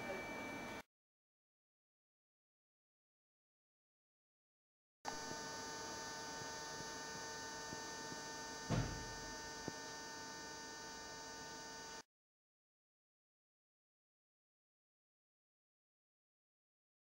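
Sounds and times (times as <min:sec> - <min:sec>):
electrical hum: 0:05.1 - 0:12.0
low thump: 0:08.7 - 0:09.1.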